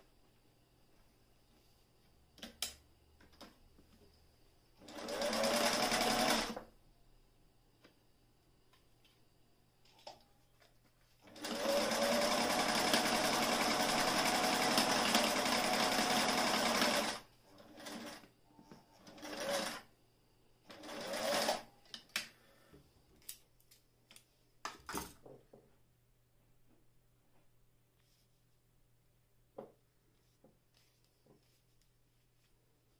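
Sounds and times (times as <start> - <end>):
sewing machine running: 4.8 - 6.6, 11.3 - 18.2, 19.0 - 19.8, 20.7 - 21.6
fabric rustling: 30.1 - 32.9.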